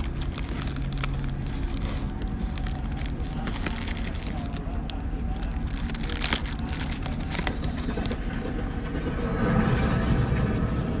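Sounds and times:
paper and plastic crinkling: 0:00.0 - 0:08.5
bus engine and road rumble: 0:00.0 - 0:11.0.

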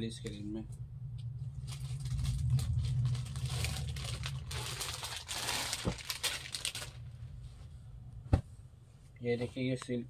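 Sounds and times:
steady low hum: 0:00.0 - 0:10.0
fabric rustling and crinkling: 0:01.5 - 0:07.7.

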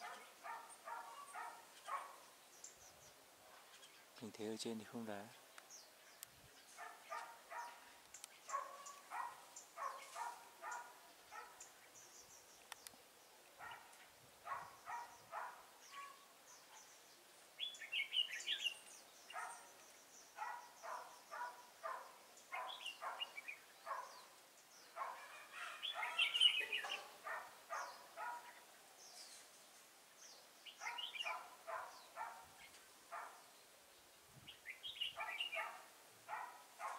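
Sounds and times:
birds singing clipped notes: 0:00.0 - 0:36.9
bright high bird chirping: 0:25.8 - 0:27.1.

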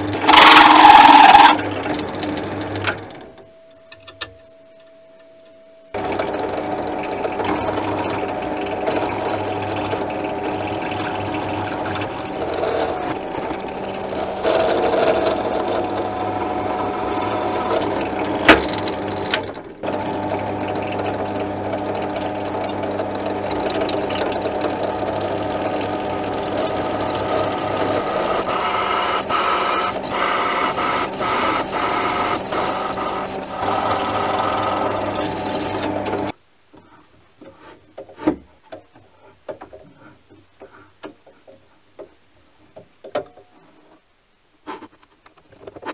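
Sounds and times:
drilling machine boring into metal: 0:00.0 - 0:02.7, 0:07.3 - 0:36.3.

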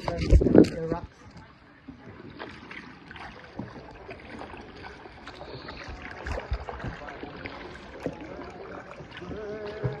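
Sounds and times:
paddles splashing: 0:00.0 - 0:10.0
water lapping and dripping: 0:00.0 - 0:10.0.

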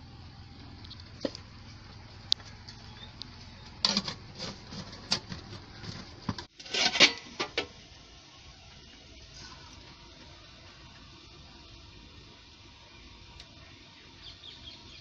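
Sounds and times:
metal pots clinking and clattering: 0:03.8 - 0:07.8.

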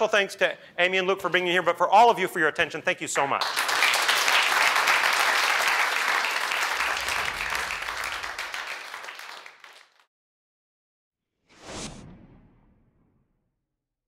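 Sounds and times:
audience applauding: 0:03.4 - 0:10.1
whoosh sound effect: 0:11.4 - 0:13.3.

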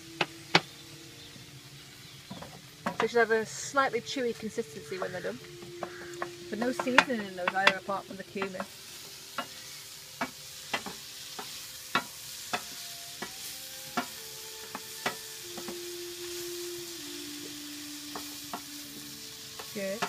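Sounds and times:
onions sizzling in frying pan: 0:00.0 - 0:20.0
wooden spoon knocking pan: 0:05.0 - 0:08.7.

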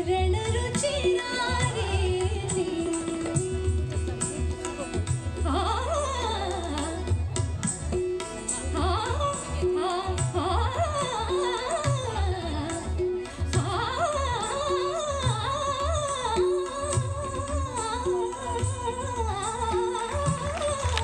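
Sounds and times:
woman singing: 0:00.0 - 0:04.0, 0:05.4 - 0:07.2, 0:08.7 - 0:21.0
keyboard accompaniment: 0:00.0 - 0:21.0
tabla beat: 0:00.0 - 0:21.0
flute: 0:13.3 - 0:21.0.

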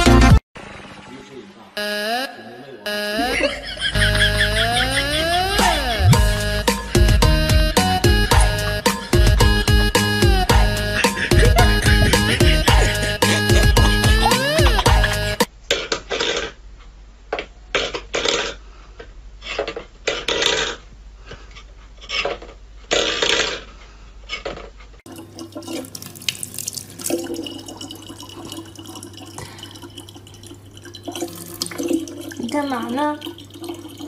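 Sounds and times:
tap water running into plastic bottle: 0:25.1 - 0:34.0.

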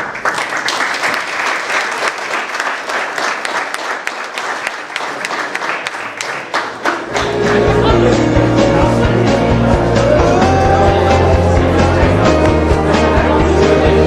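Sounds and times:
audience applauding: 0:00.0 - 0:08.6
music with heavy bass: 0:07.1 - 0:14.0.

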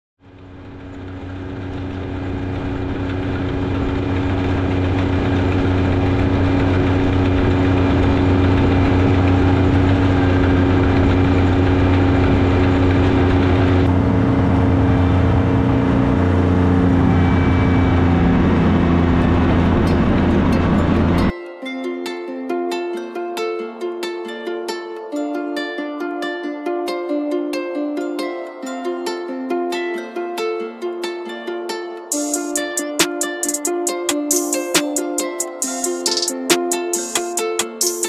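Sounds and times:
lawn mower engine running: 0:00.2 - 0:21.3.

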